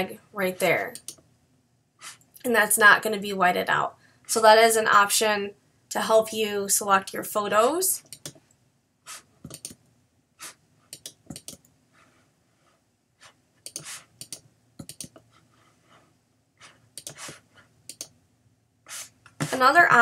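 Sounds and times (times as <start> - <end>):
computer mouse clicks: 0.9 - 1.3, 8.0 - 8.6, 9.4 - 9.8, 10.9 - 11.8, 13.6 - 15.3, 16.9 - 18.2.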